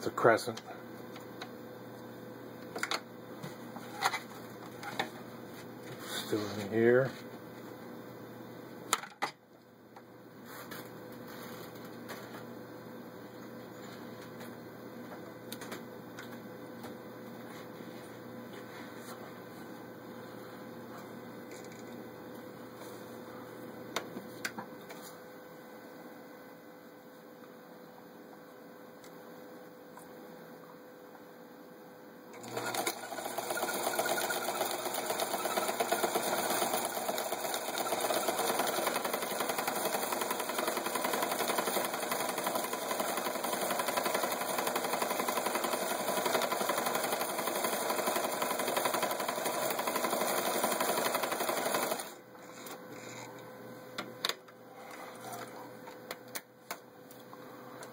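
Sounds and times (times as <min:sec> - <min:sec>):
sewing machine running: 0:32.4 - 0:52.2.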